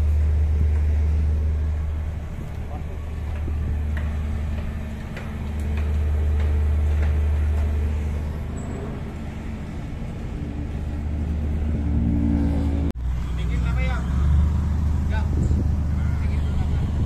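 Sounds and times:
hydraulic power unit humming: 0.0s - 12.9s.

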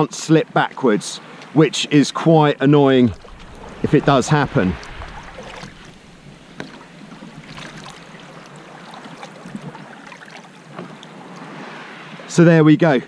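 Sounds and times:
water lapping against hull: 2.8s - 12.3s.

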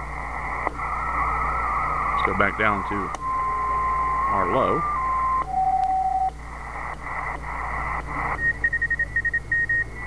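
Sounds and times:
radio hiss: 0.0s - 5.1s, 6.4s - 9.2s
morse code beeping: 8.4s - 9.9s.

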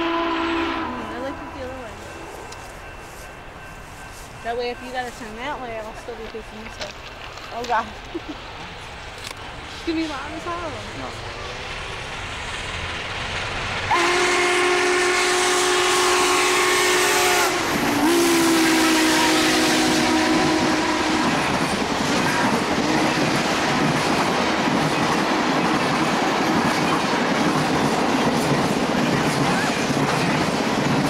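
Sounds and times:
steam whistle blasts: 0.0s - 1.7s, 13.9s - 21.5s
train cars rumbling and clattering: 0.0s - 31.0s.

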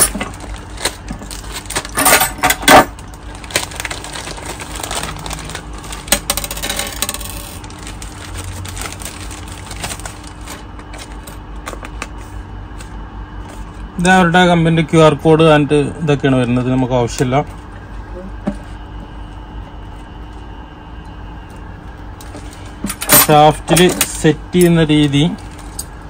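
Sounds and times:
packaging being handled: 0.1s - 2.0s, 2.9s - 13.8s.

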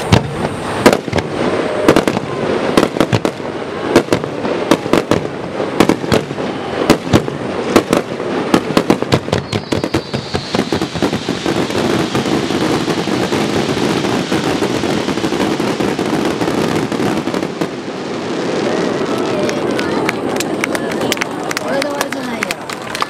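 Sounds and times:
falling firework whistle: 0.0s - 5.2s, 8.5s - 19.4s
firework bangs: 0.0s - 23.0s
firework fountain hissing: 0.0s - 23.0s.

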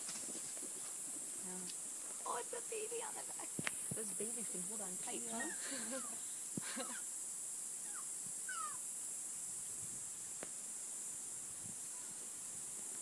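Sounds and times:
insects buzzing: 0.0s - 13.0s
falling chirps: 7.8s - 8.9s.

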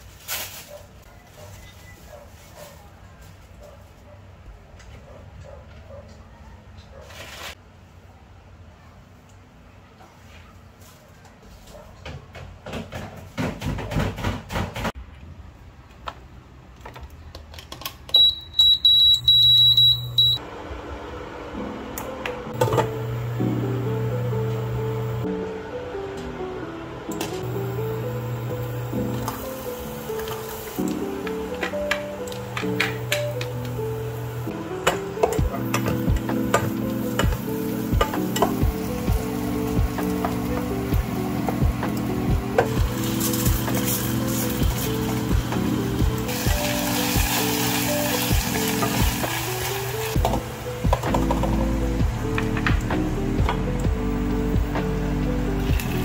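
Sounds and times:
low cooktop hum: 14.5s - 56.0s
cooktop control panel beeping: 18.1s - 20.4s
background music: 21.3s - 56.0s
onions sizzling in a pan: 27.7s - 30.9s, 42.6s - 50.2s.

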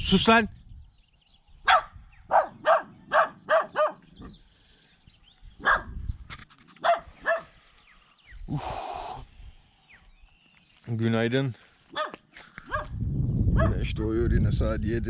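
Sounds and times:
dog barking: 1.6s - 4.1s, 5.6s - 6.0s, 6.8s - 7.5s, 11.9s - 13.8s.

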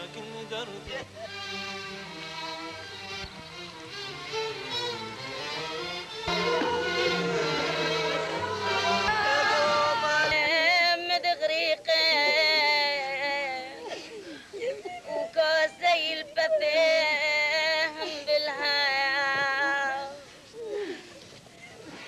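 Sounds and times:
woman wailing a lament: 6.3s - 10.6s.

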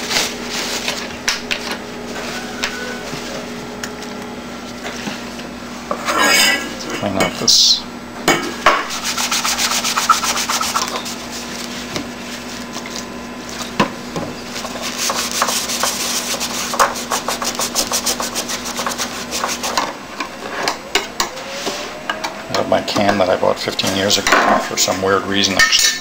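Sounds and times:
steady low hum: 0.0s - 25.9s
rubbing and scraping strokes: 8.9s - 11.8s, 14.6s - 19.8s.

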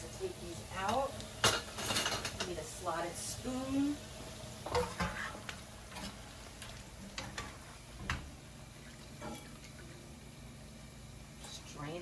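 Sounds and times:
chips sizzling in oil: 0.0s - 12.0s
metal utensils tapping a pan: 0.8s - 2.6s.

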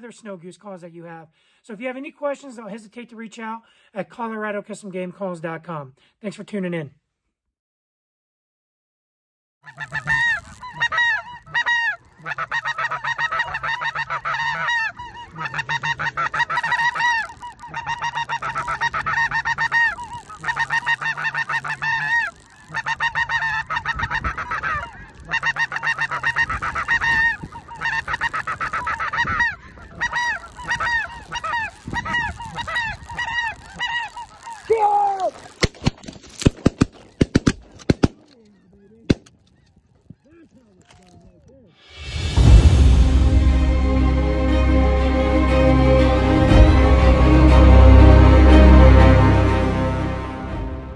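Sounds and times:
snow goose honking: 9.7s - 41.2s, 43.6s - 50.8s
sharp loud cracks: 30.2s - 38.4s, 39.0s - 39.6s.

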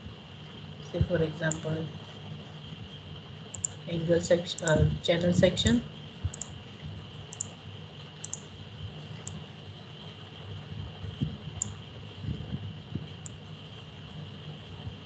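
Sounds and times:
low background noise: 0.0s - 15.0s
thin high hum: 0.0s - 15.0s
faint sharp clicks: 3.5s - 3.8s.

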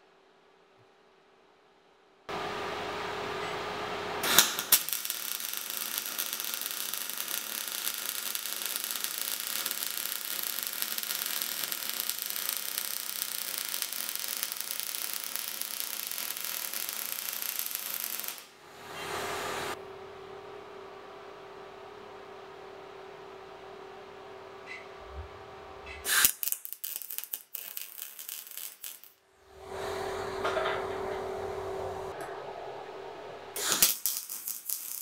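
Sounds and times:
welding machine hum: 2.3s - 19.8s, 25.8s - 35.0s
welding arc crackling: 4.2s - 18.6s, 26.0s - 29.8s, 33.6s - 35.0s.

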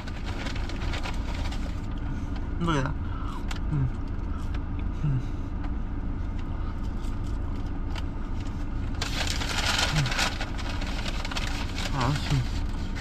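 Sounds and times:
car idling hum: 0.0s - 13.0s
man humming while eating: 3.3s - 4.1s, 4.8s - 5.6s.

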